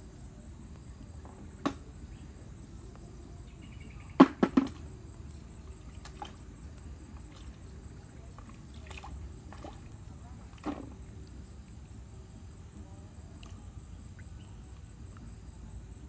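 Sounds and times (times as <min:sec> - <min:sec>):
high insect trill: 0:00.0 - 0:16.0
low outdoor rumble: 0:00.0 - 0:16.0
snails knocking in plastic bucket: 0:04.2 - 0:05.0, 0:10.6 - 0:11.0.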